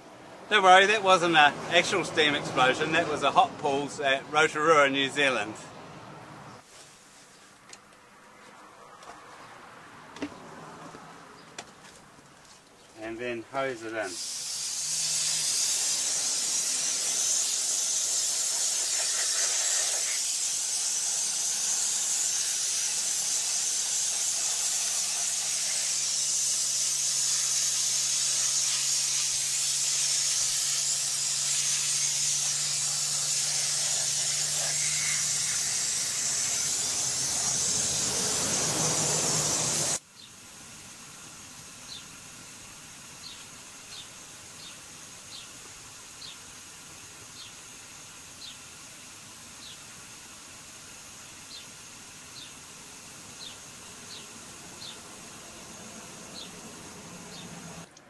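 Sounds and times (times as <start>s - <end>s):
hose water spraying: 13.6s - 57.9s.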